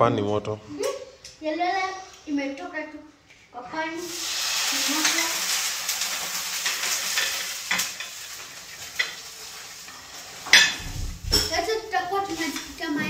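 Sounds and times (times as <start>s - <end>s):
frying pan sizzling: 3.7s - 13.0s
pan clanking: 10.4s - 12.7s.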